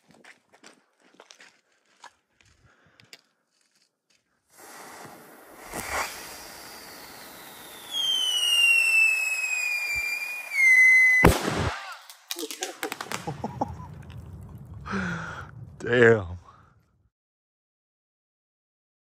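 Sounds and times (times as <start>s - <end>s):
firework fuse hissing: 4.5s - 11.8s
firework bang: 4.6s - 16.6s
firework pop: 5.0s - 6.4s, 12.3s - 15.8s
firework whistle sliding down: 5.6s - 11.4s.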